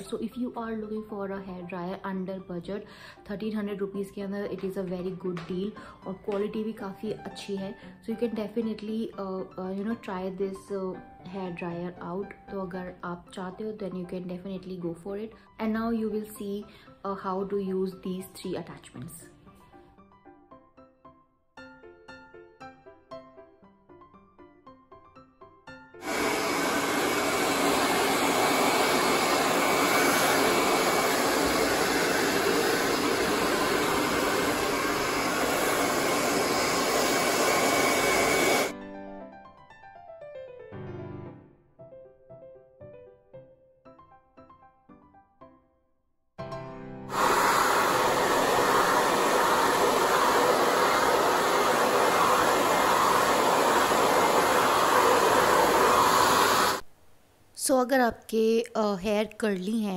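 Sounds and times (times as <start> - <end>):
hair dryer blowing air: 26.0 - 38.8, 47.1 - 56.9.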